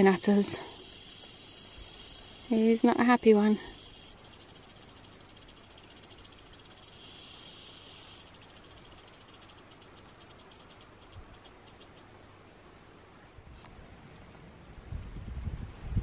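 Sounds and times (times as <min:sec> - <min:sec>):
rattlesnake rattling: 0:00.0 - 0:12.1.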